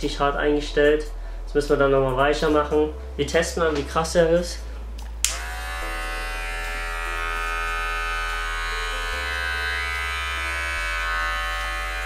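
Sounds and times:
hair clipper buzzing: 0:05.2 - 0:12.0.

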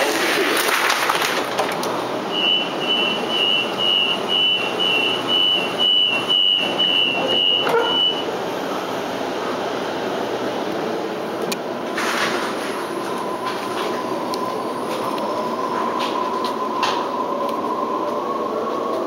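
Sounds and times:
train carriage noise: 0:00.0 - 0:19.0
high door warning beeps: 0:02.3 - 0:08.3.

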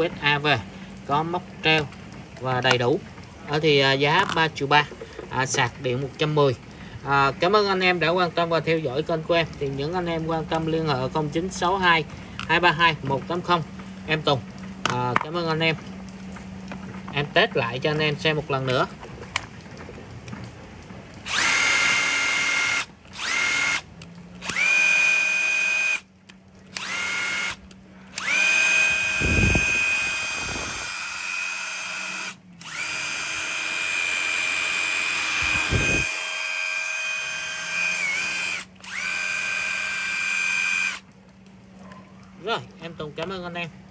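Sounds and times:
impact driver motor whine: 0:21.3 - 0:23.8, 0:24.4 - 0:26.0, 0:26.8 - 0:41.0.

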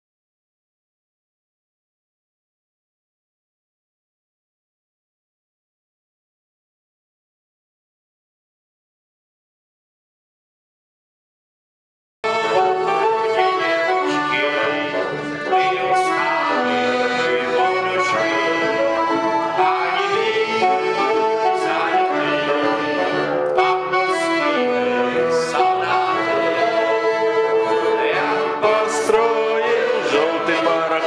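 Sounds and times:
accordion: 0:12.2 - 0:31.0
double bass: 0:12.2 - 0:31.0
saxophone: 0:12.2 - 0:31.0.

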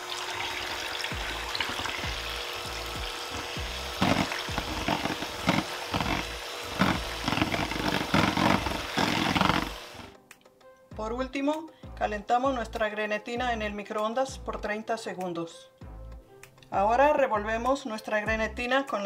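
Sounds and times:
electric hand mixer running: 0:00.0 - 0:10.1
liquid splashing in bowl: 0:03.3 - 0:09.8.

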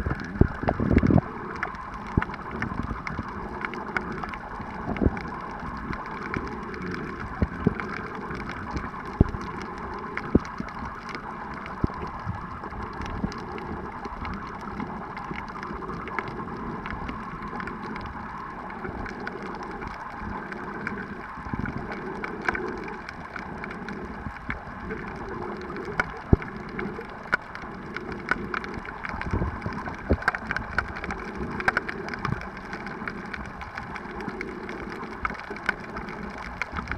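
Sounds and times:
muffled underwater rush: 0:00.0 - 0:36.9.

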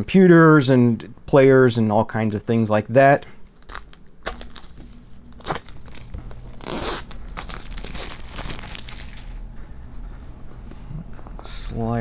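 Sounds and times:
plastic wrap tearing and crinkling: 0:03.6 - 0:09.4.

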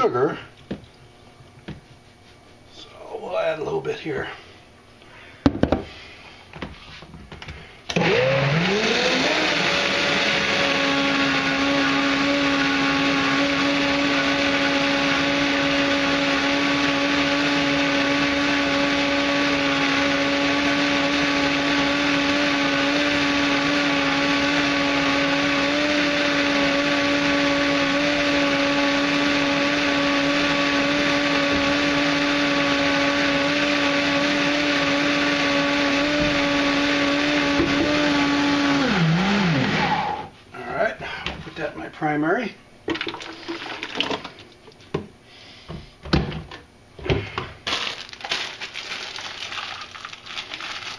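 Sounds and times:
blender motor whirring: 0:07.9 - 0:40.3, 0:47.7 - 0:50.9.

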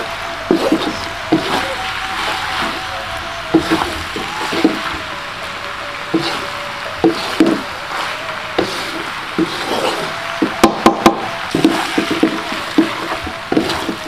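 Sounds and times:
food sizzling: 0:00.0 - 0:14.0
spatula scraping and knocking wok: 0:11.5 - 0:14.0.

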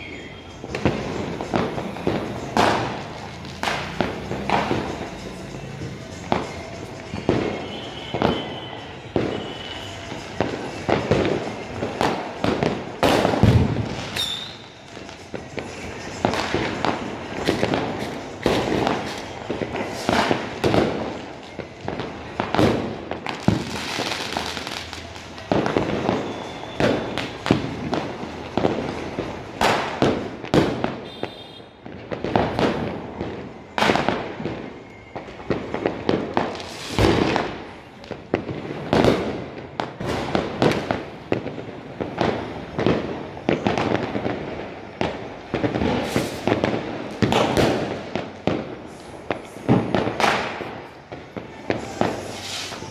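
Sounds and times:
firework whistle: 0:00.0 - 0:02.4, 0:06.4 - 0:11.4, 0:14.1 - 0:14.9, 0:23.5 - 0:28.2, 0:30.9 - 0:31.8, 0:51.8 - 0:52.9
firecrackers banging and popping: 0:00.0 - 0:52.9.

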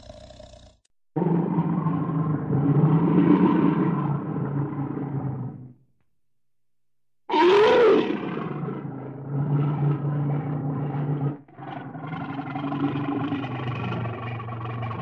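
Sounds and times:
bear growling: 0:07.3 - 0:15.0.

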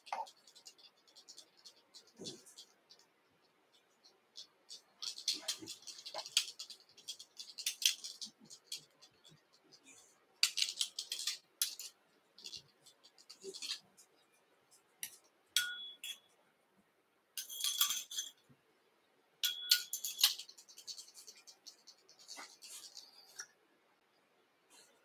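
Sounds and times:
light clicks and taps of tools: 0:03.7 - 0:16.3, 0:19.4 - 0:23.6
metallic ringing clink: 0:15.6 - 0:16.3, 0:17.4 - 0:18.4, 0:19.4 - 0:20.4.

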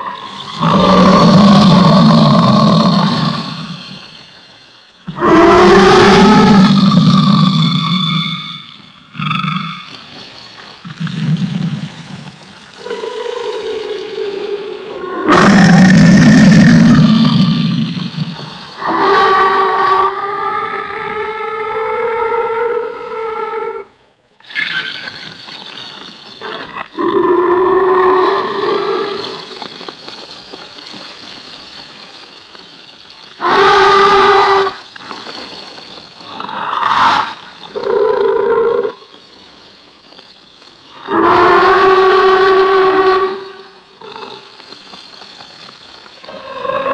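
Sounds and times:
alligator roaring: 0:00.0 - 0:04.0, 0:05.1 - 0:10.0, 0:10.8 - 0:25.4, 0:26.4 - 0:29.6, 0:33.4 - 0:34.8, 0:36.3 - 0:39.0, 0:41.0 - 0:44.6, 0:46.3 - 0:46.9.

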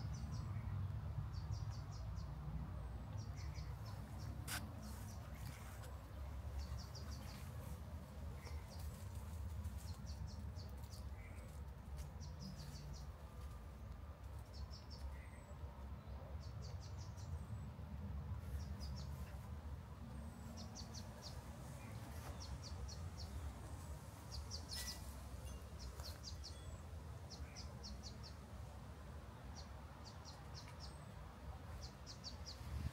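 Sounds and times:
small birds chirping: 0:00.0 - 0:17.8, 0:18.4 - 0:28.5, 0:29.4 - 0:32.9.

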